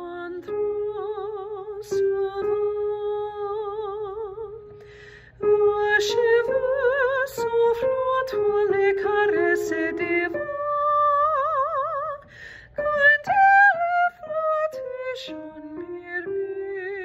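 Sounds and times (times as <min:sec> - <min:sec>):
woman singing with vibrato: 0:00.0 - 0:04.7, 0:05.4 - 0:17.0
singer breathing: 0:04.7 - 0:05.4, 0:12.2 - 0:12.8.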